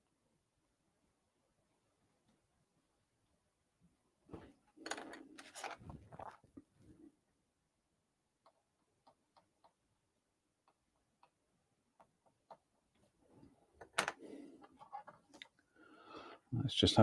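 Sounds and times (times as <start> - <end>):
clicks and handling noise: 4.3 - 6.7, 10.6 - 15.6.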